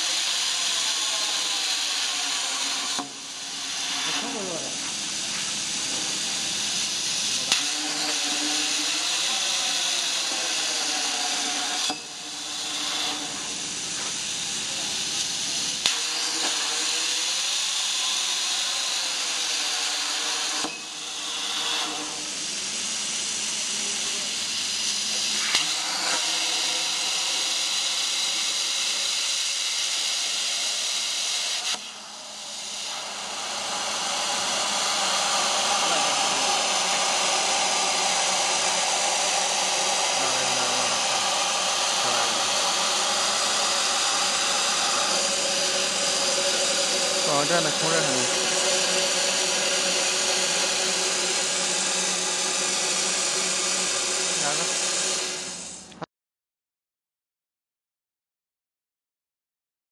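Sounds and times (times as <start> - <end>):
plasma torch hissing: 0.0 - 55.9.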